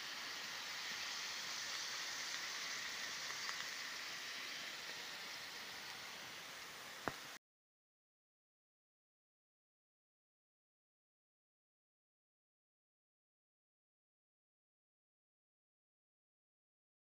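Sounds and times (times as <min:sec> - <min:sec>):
potatoes sizzling in hot oil: 0:00.0 - 0:07.4.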